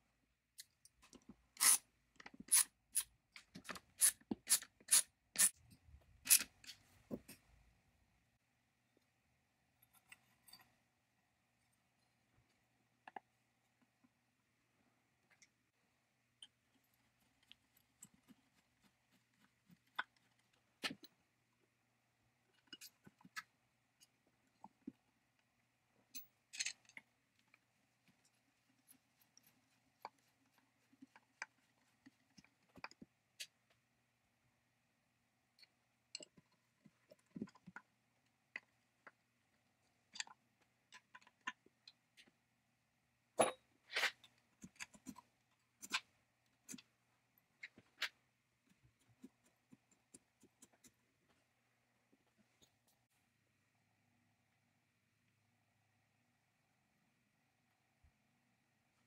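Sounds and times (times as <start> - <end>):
metal parts clicking and tapping: 26.1 - 27.6.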